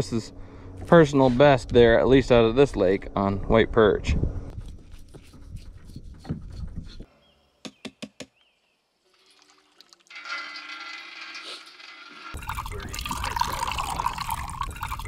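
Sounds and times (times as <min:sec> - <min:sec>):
water pouring into metal bucket: 0:09.1 - 0:15.0.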